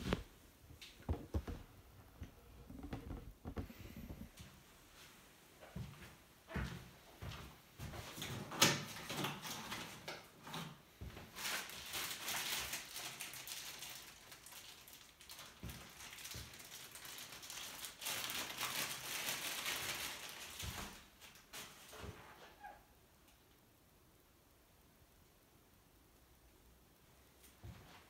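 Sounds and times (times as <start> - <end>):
plastic bag crinkling: 11.3 - 22.0.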